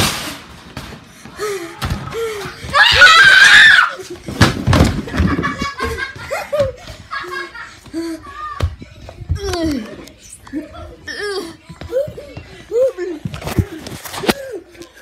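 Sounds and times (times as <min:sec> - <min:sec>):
child screaming: 0:02.7 - 0:04.0.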